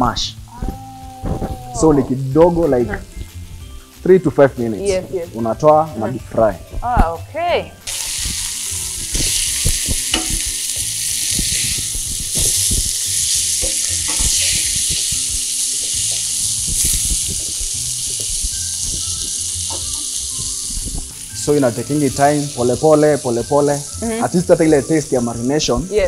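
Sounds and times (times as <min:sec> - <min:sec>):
food sizzling in oil: 0:00.0 - 0:26.0
metal turner scraping pan: 0:07.9 - 0:18.2.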